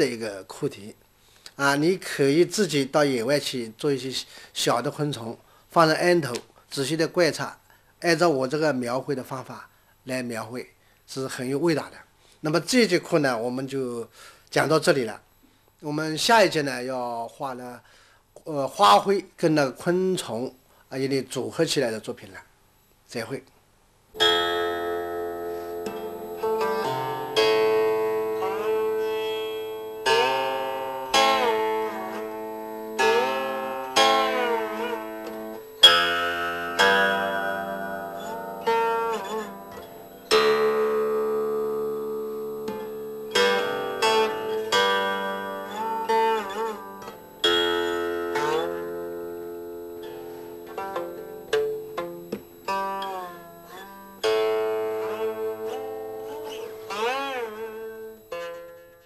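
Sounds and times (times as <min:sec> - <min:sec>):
plucked string instrument melody: 0:24.2 - 0:59.0.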